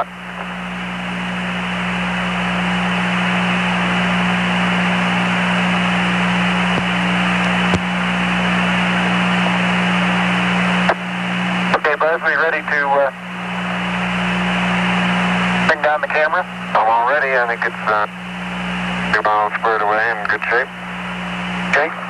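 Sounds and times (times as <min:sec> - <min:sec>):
radio click: 0:00.0 - 0:00.6, 0:10.8 - 0:11.0
low constant hum: 0:00.0 - 0:22.0
radio static hiss: 0:00.0 - 0:22.0.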